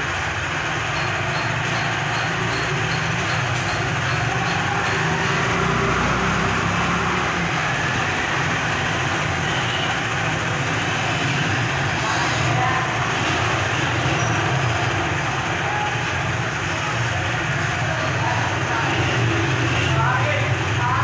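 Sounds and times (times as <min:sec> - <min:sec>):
motorcycle engines: 0:00.0 - 0:21.0.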